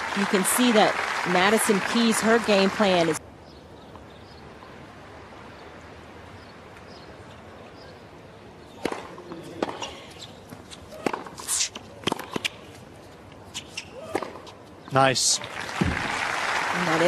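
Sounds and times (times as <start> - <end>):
tennis ball bouncing on hard court: 8.8 - 9.9, 10.6 - 11.4, 12.0 - 12.6
tennis ball struck by rackets: 8.8 - 9.9, 10.9 - 12.6, 14.1 - 14.5.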